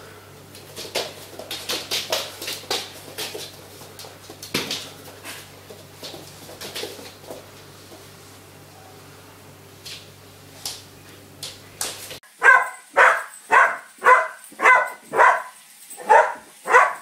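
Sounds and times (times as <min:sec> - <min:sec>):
dog barking: 0:12.4 - 0:17.0.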